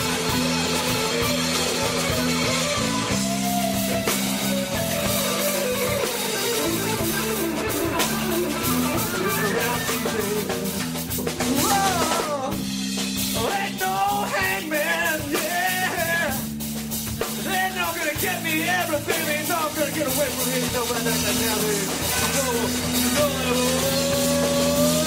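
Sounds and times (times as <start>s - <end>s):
lead guitar bent notes: 0.0s - 12.8s
rock band playing: 0.0s - 25.0s.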